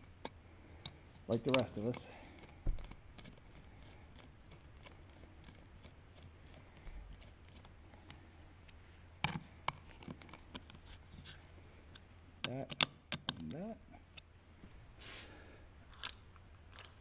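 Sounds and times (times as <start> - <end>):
sharp metal clicks: 0.2 - 3.6, 12.4 - 13.6.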